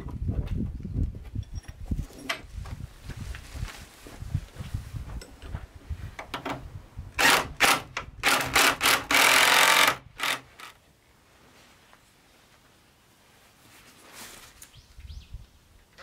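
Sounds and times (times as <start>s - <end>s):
impact driver driving screw: 7.2s - 10.7s.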